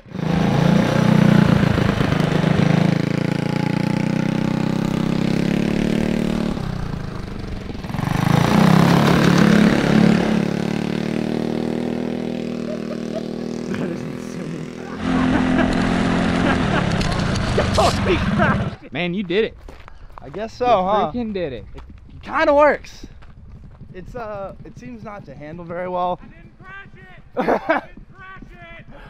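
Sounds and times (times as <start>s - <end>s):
go-kart engine revving: 0.0s - 18.8s.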